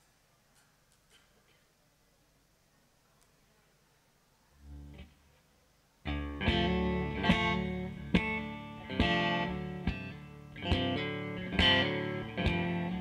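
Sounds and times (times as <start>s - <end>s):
electric guitar strumming chords: 6.1s - 13.0s.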